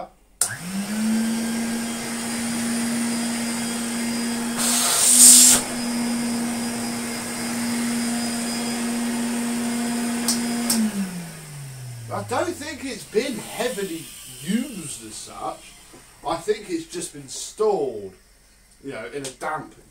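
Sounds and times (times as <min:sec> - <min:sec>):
vacuum cleaner motor humming: 0:00.4 - 0:18.8
hiss of air: 0:04.6 - 0:06.0, 0:13.2 - 0:17.6
switch click: 0:10.2 - 0:10.9.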